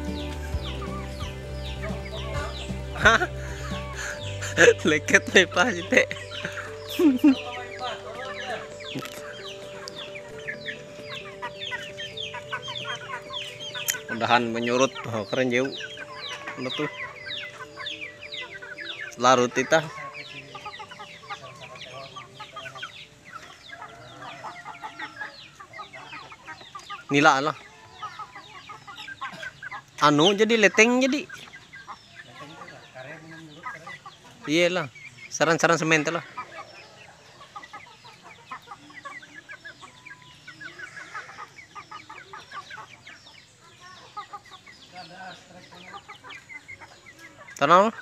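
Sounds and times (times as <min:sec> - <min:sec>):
high downward-sliding chirps: 0:00.0 - 0:32.2
chickens clucking: 0:00.0 - 0:48.0.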